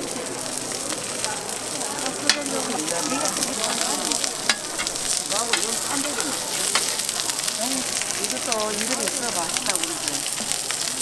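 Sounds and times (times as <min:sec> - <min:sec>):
batter sizzling in oil: 0:00.0 - 0:11.0
metal spatula clicking on griddle: 0:02.2 - 0:02.6, 0:04.4 - 0:07.1.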